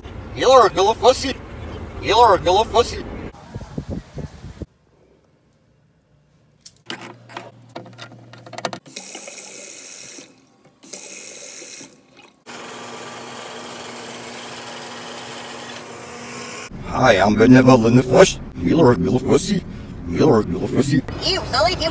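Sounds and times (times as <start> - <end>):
handling clicks and knocks: 6.6 - 8.9.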